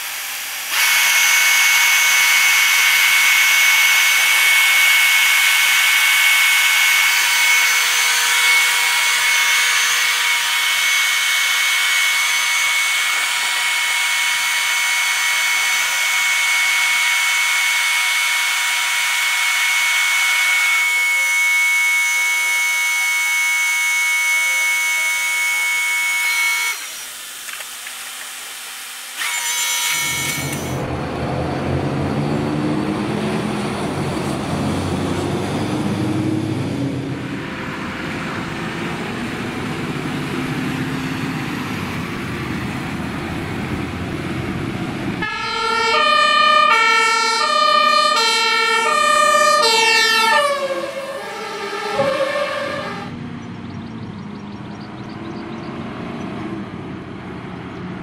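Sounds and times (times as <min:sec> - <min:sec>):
fire engine diesel engine running: 0:00.0 - 0:25.2, 0:30.2 - 0:55.6
hydraulic drive whining: 0:00.0 - 0:30.9, 0:38.4 - 0:53.1.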